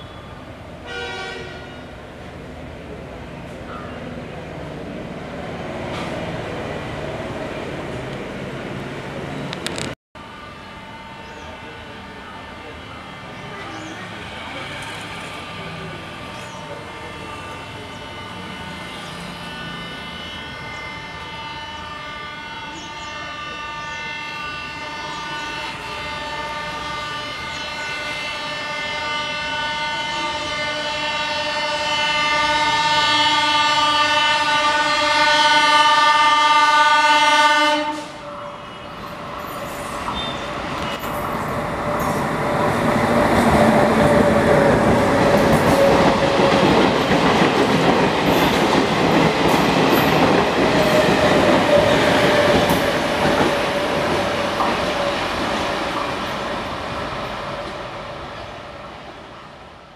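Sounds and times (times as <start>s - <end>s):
train horn blast: 0.0s - 1.9s, 16.8s - 39.0s
train rumbling and wheels clattering: 0.0s - 59.9s.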